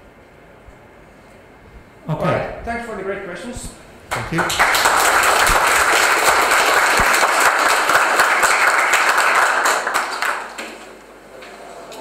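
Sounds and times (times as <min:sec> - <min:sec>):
audience applauding: 0:04.1 - 0:10.9.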